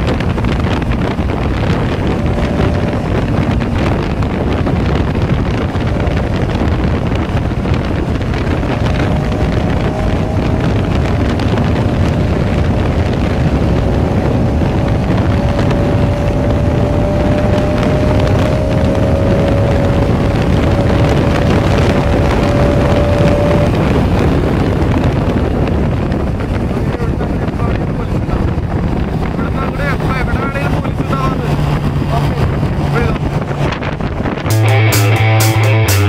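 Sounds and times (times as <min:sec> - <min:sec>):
motorcycle engine at high speed: 0:00.0 - 0:36.0
wind buffeting microphone: 0:00.0 - 0:36.0.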